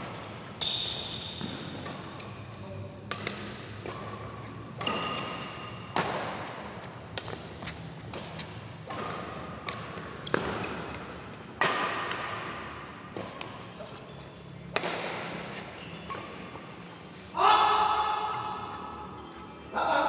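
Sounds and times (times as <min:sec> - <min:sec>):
rackets hitting shuttlecock: 0:03.0 - 0:14.0, 0:14.6 - 0:17.2.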